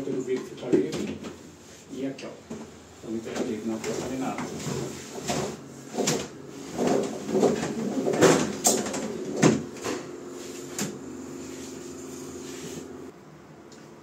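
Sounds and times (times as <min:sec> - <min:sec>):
steady low hum: 0:00.0 - 0:14.0
window shutter knocks and rattles: 0:02.6 - 0:10.1.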